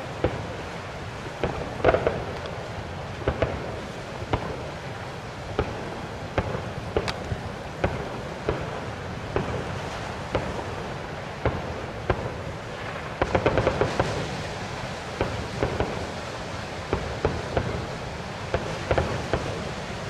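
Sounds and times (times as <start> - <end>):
fireworks crackling: 0.0 - 20.0
fireworks bangs: 1.2 - 4.8, 5.4 - 14.5, 15.1 - 16.2, 18.5 - 19.8.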